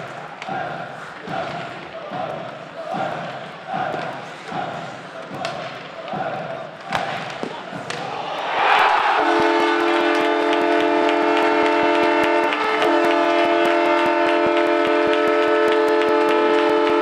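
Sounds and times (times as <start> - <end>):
arena goal horn: 9.1 - 17.0.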